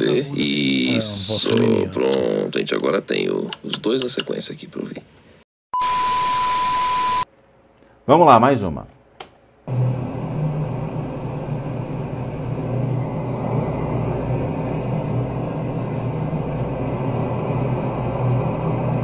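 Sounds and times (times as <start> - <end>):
low hum: 9.7 - 19.0
steady hiss: 9.7 - 19.0.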